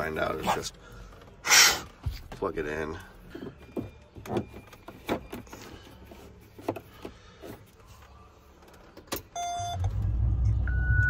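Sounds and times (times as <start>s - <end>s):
short electronic beep: 10.5s - 11.0s.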